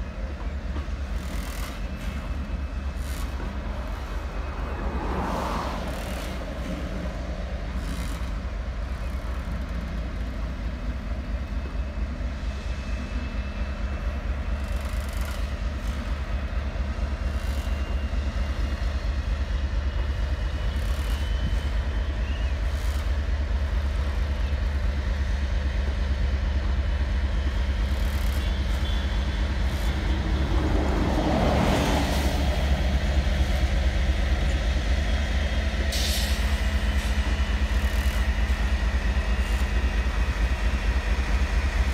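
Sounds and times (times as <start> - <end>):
diesel locomotive engine throbbing: 0.0 - 41.9.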